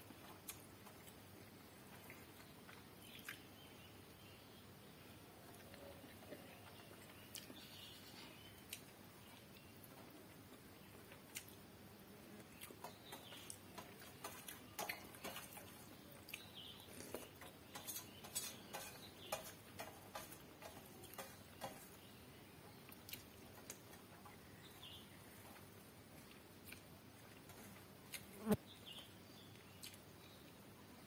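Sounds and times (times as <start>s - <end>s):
person chewing and lip smacking: 11.2s - 11.6s, 26.2s - 26.9s, 29.6s - 30.0s.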